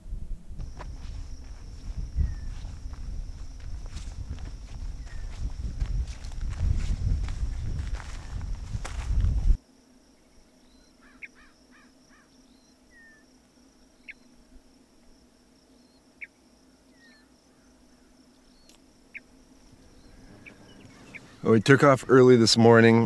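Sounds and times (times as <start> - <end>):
faint high insect buzz: 0.0 - 23.0
boot crunching on dry grass: 0.6 - 9.6.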